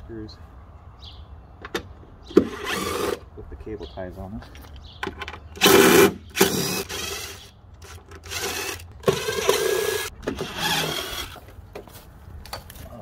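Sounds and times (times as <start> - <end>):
power drill whining: 2.4 - 3.2, 5.6 - 11.4.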